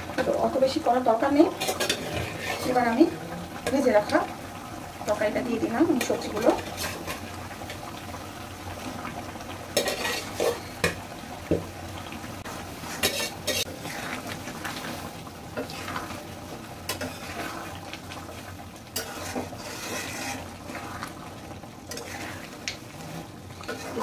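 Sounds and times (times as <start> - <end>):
curry sizzling: 0.0 - 24.0
spatula scraping a pan: 1.5 - 3.0, 6.0 - 7.3, 9.8 - 11.0, 12.8 - 16.2, 16.9 - 17.9, 18.9 - 21.2, 21.9 - 24.0.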